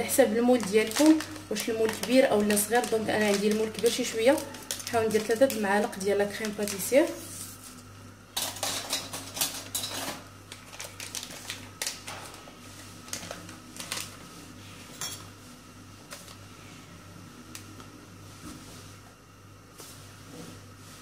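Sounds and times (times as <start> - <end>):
foil packet crinkling: 0.2 - 7.2, 10.5 - 14.3.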